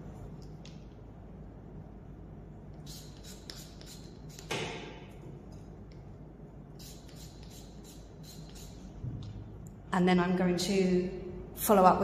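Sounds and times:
spray bottle hiss: 6.8s - 8.8s.

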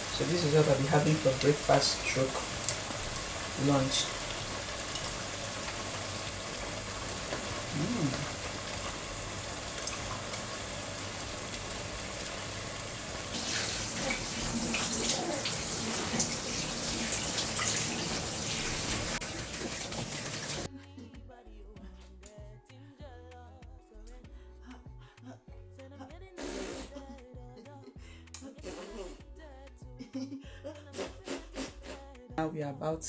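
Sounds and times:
shower water spraying into a tub: 0.0s - 20.7s, 26.4s - 26.9s.

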